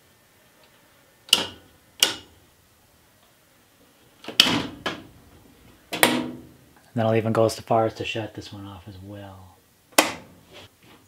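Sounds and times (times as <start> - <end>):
circuit breakers snapping off: 1.3 - 2.4, 5.9 - 6.4, 9.9 - 10.3.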